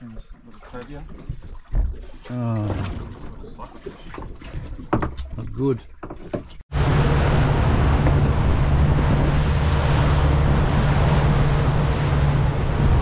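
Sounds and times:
boat engine humming: 6.0s - 13.0s
wind rushing over microphone: 6.7s - 13.0s.

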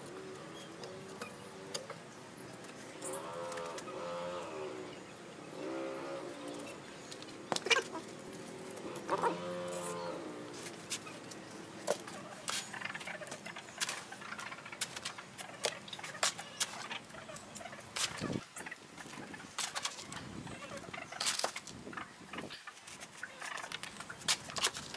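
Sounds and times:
drawn-out animal call: 8.8s - 10.5s.

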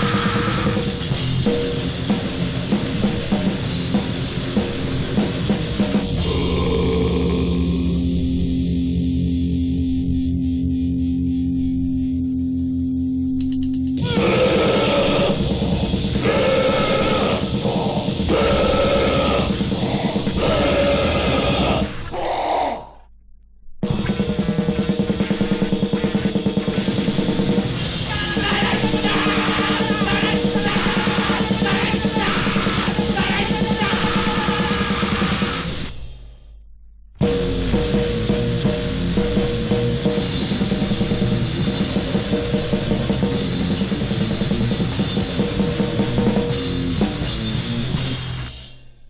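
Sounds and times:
fast pounding drums: 0.0s - 7.8s, 14.0s - 22.0s, 23.8s - 35.9s, 37.2s - 48.4s
grindcore band playing: 0.0s - 8.2s, 14.0s - 22.0s, 23.8s - 35.9s, 37.2s - 48.5s
distorted guitars: 0.0s - 23.2s, 23.8s - 36.4s, 37.2s - 49.0s.

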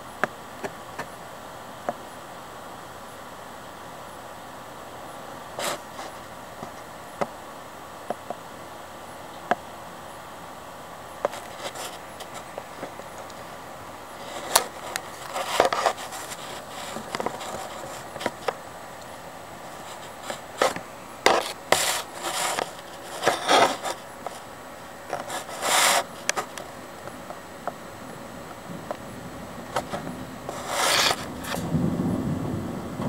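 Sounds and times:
handling noise rubbing and scraping: 5.6s - 6.9s, 11.2s - 18.7s, 19.6s - 27.3s, 29.7s - 31.8s.

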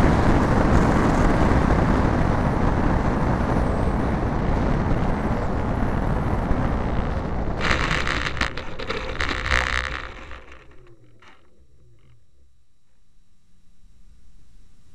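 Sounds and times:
propeller whine: 4.7s - 12.5s
rolling rumble: 4.8s - 12.8s
wheels scraping through grass: 7.6s - 12.1s.

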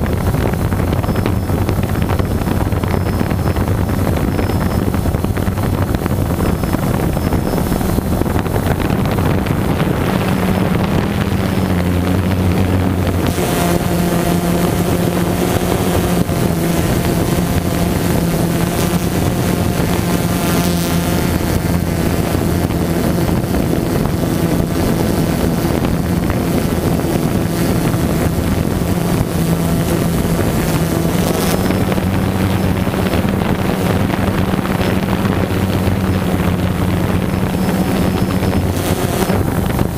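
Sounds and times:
drone propellers humming: 0.0s - 39.9s
wind buffeting microphone: 0.0s - 39.9s.

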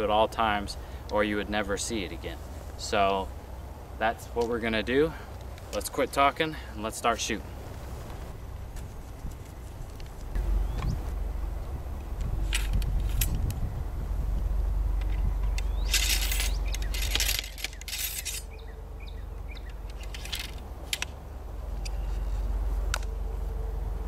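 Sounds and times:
low rumble: 8.2s - 24.0s
metal clicks and clinks: 15.0s - 18.6s
ramrod scraping in barrel: 15.8s - 18.5s.

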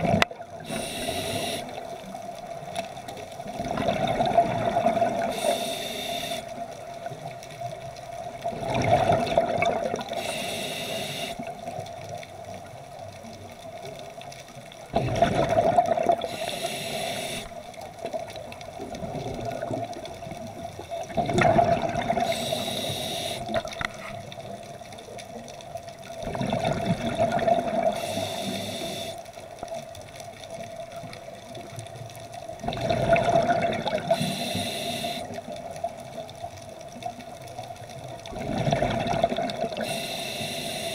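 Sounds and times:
regulator inhalation hiss: 0.6s - 1.9s, 5.2s - 6.6s, 10.1s - 11.5s, 16.3s - 17.6s, 22.2s - 23.6s, 27.9s - 29.2s, 34.1s - 35.4s, 39.8s - 40.9s
exhaust bubbles rumbling: 3.6s - 5.3s, 8.5s - 10.1s, 14.9s - 16.3s, 21.1s - 22.4s, 26.2s - 28.0s, 32.6s - 34.2s, 38.2s - 39.9s.

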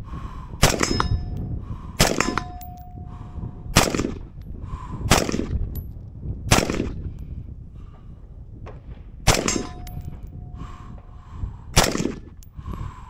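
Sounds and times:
rifle shots: 0.6s - 1.1s, 2.0s - 2.6s, 3.8s - 4.2s, 5.1s - 5.5s, 6.5s - 7.0s, 9.3s - 9.9s, 11.8s - 12.2s.

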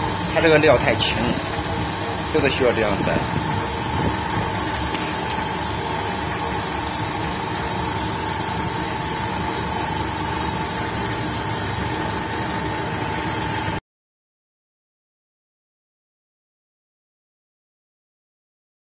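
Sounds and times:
high whining tone: 0.0s - 13.8s
vibrating sieve motor humming: 0.0s - 13.8s.

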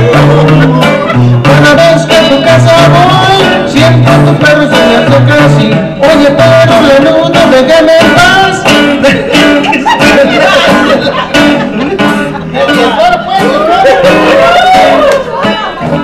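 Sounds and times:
man singing into microphone: 0.0s - 15.6s
guitars strumming: 0.0s - 16.0s.

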